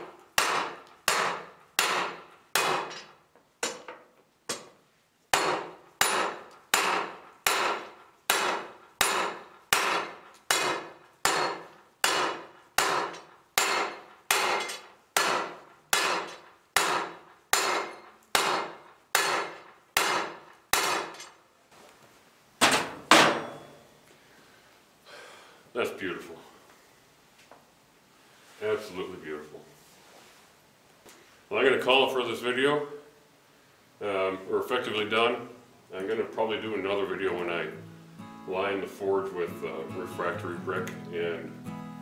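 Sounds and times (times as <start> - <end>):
hammer striking metal bar: 0.4 - 3.9, 5.3 - 21.4, 22.7 - 23.8.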